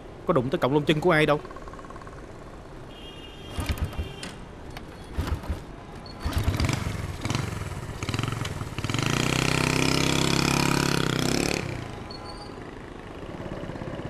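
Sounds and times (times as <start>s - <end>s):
motorbike engine starting: 3.5s - 10.9s.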